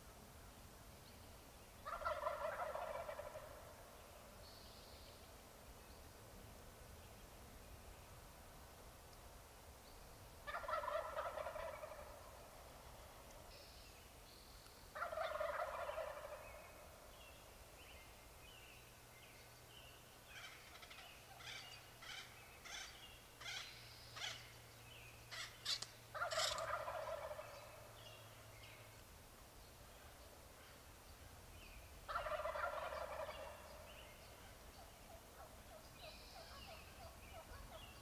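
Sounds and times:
turkey short sharp calls: 0:01.8 - 0:03.6, 0:10.5 - 0:12.2, 0:15.0 - 0:16.4, 0:20.4 - 0:24.5, 0:25.3 - 0:27.5
turkey gobbling: 0:01.8 - 0:03.8, 0:10.4 - 0:12.6, 0:15.0 - 0:16.8, 0:20.3 - 0:24.5, 0:25.3 - 0:27.8, 0:32.1 - 0:38.0.

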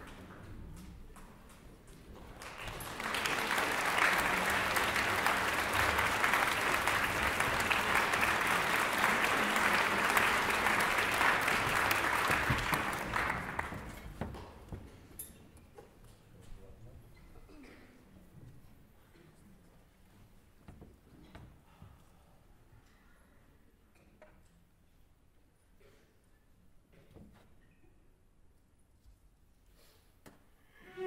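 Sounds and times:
audience applauding: 0:02.2 - 0:14.2.

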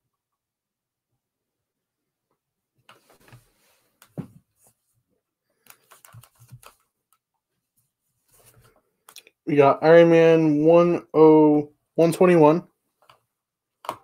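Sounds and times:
comic books rustling and tapping: 0:02.8 - 0:09.2.

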